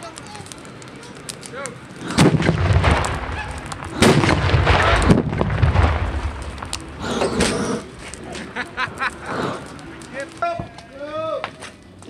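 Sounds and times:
cannon booms: 2.0 - 7.6.

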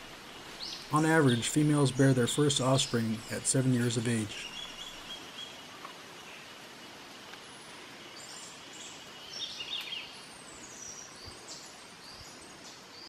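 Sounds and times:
steady low hiss: 0.0 - 13.0
bird chirps: 0.4 - 5.8.

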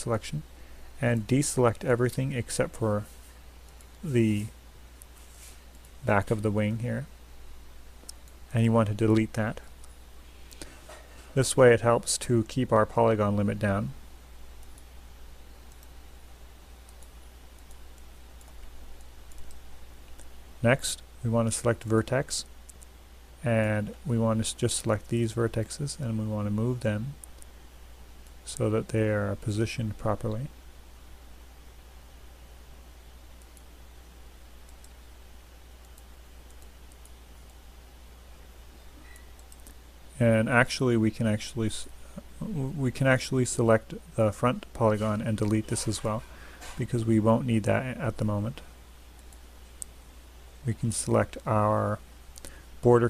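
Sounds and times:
low electrical hum and hiss: 0.0 - 53.0
computer mouse clicks: 14.6 - 14.9, 15.7 - 16.0, 16.8 - 20.3, 35.8 - 37.6, 39.0 - 39.8, 49.2 - 49.9.

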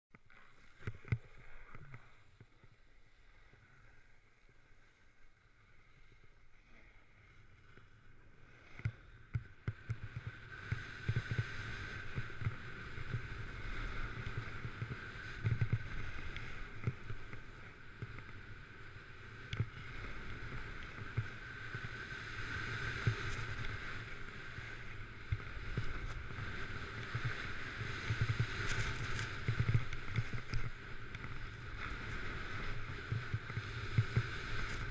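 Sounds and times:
snowboard edge scraping snow: 19.8 - 34.9.

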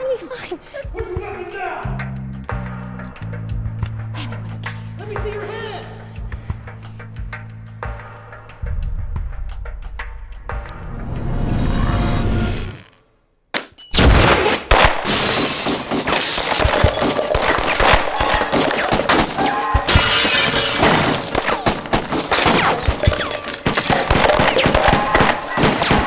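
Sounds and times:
swell of sound: 8.6 - 13.0
glass shattering and objects breaking: 13.8 - 14.4, 15.0 - 26.0.

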